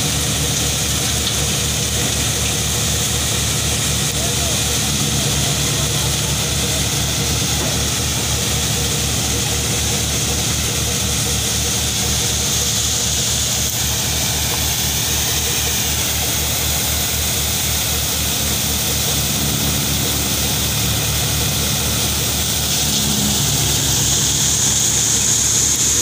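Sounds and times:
tractor engine low beat: 0.0s - 26.0s
wheat thresher running: 0.0s - 26.0s.

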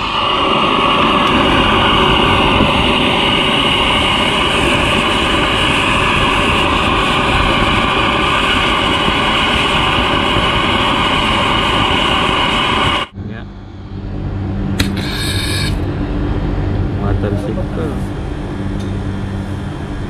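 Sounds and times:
gas torch roaring hiss: 0.0s - 16.0s.

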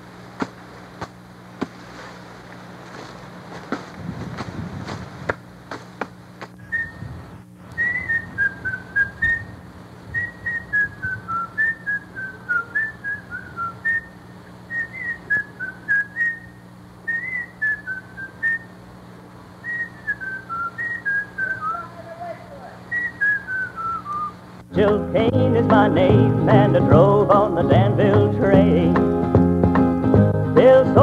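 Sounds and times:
low steady hum: 0.0s - 31.0s
person whistling a tune: 7.8s - 9.5s, 22.9s - 24.4s.

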